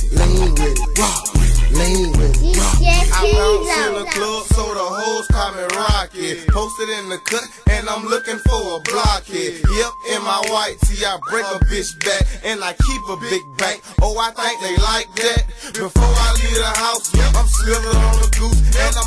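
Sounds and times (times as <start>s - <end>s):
heavy bass beat: 0.0s - 6.7s, 7.7s - 13.2s, 14.0s - 19.0s
person rapping: 0.0s - 19.0s
high held synth line: 0.2s - 4.1s.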